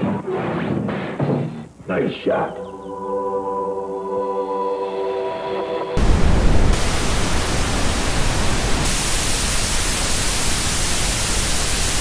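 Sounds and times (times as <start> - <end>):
tv static hiss: 0.0 - 2.6, 6.0 - 12.0.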